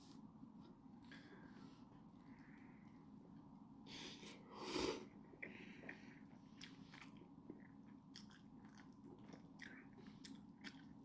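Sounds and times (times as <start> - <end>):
chewing with soft clicks: 5.2 - 11.0.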